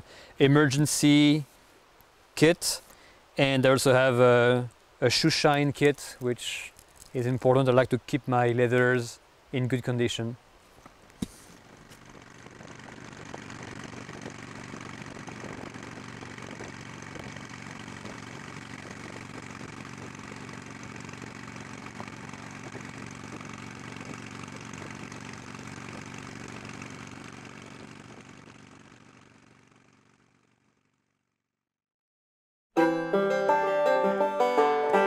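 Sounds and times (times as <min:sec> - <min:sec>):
road and wind noise: 0:10.4 - 0:30.0
motorcycle engine running: 0:11.2 - 0:31.4.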